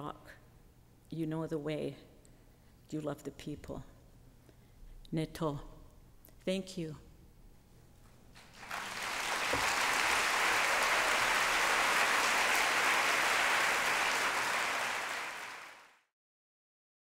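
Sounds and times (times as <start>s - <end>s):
audience applauding: 8.4s - 16.1s.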